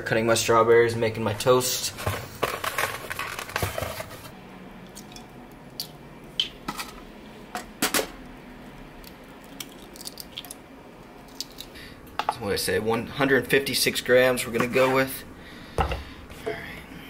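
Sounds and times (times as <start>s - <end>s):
eggshells cracking: 9.0s - 10.6s, 11.2s - 11.8s.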